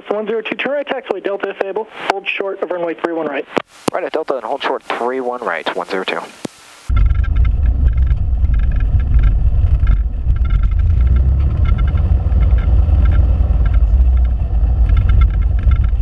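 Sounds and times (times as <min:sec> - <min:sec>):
propeller plane engine low rumble: 0:06.9 - 0:16.0.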